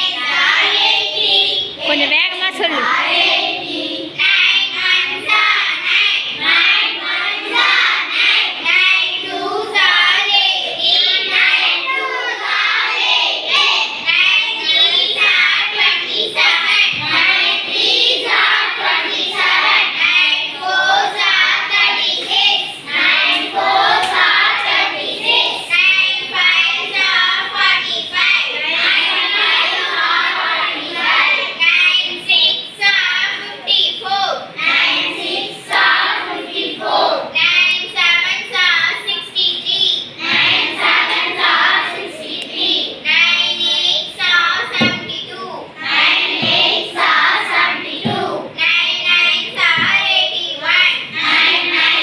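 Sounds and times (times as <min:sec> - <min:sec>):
children chanting in unison: 0:00.0 - 0:02.0, 0:02.6 - 0:52.0.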